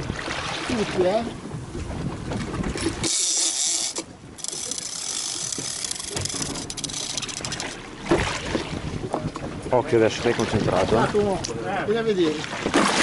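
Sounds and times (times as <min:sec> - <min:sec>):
fishing reel clicking and whirring: 0:02.9 - 0:07.8.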